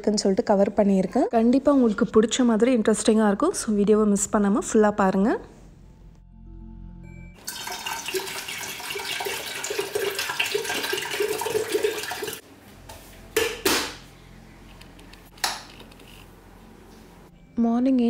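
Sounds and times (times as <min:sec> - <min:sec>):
water pouring into kettle: 0:07.4 - 0:12.4.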